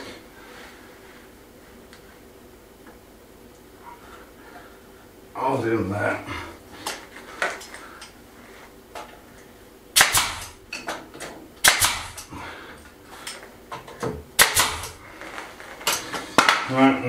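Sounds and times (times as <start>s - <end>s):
nail gun firing into wood: 10.0s - 10.6s, 11.6s - 12.3s, 14.4s - 15.0s.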